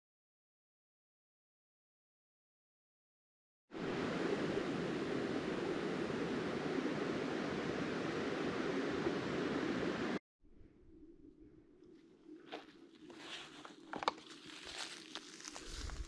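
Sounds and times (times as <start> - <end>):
water rushing: 3.8 - 10.2.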